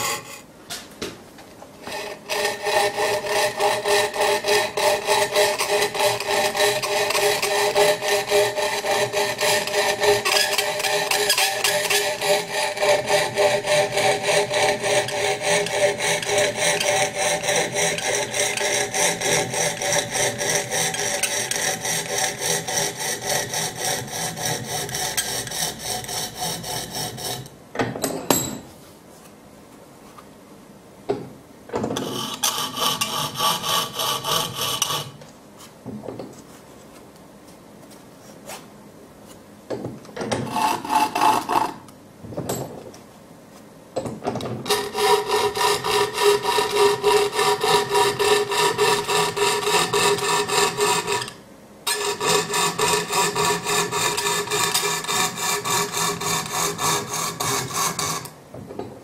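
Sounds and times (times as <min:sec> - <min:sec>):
coping saw rasping through board: 0:01.8 - 0:27.5, 0:32.0 - 0:35.2, 0:40.4 - 0:41.8, 0:44.7 - 0:58.3.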